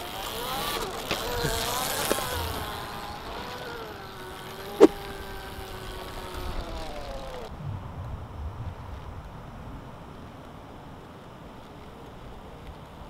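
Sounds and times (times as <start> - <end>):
electric motorcycle motor whining: 0.0 - 7.5
low wind rumble: 0.0 - 13.0.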